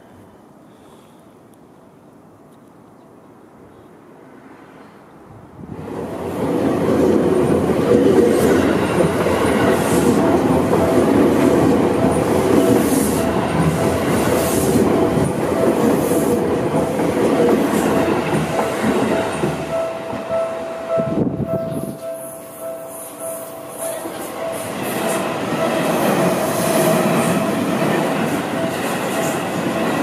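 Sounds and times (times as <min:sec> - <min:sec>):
train wheels rumbling on rails: 0:05.6 - 0:30.0
crossing warning bell ringing: 0:07.5 - 0:30.0.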